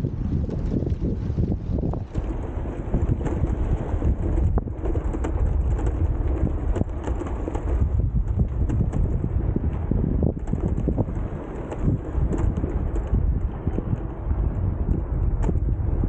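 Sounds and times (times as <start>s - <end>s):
wind buffeting microphone: 0.0s - 16.0s
small clicks and knocks: 2.1s - 14.2s, 14.9s - 15.8s.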